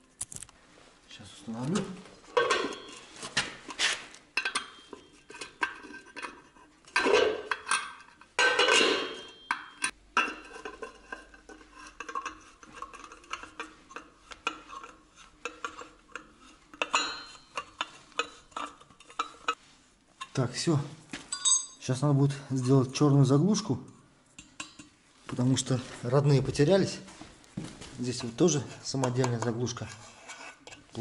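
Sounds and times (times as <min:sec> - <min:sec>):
hubcap clinking on metal wheel: 0:16.8 - 0:18.4.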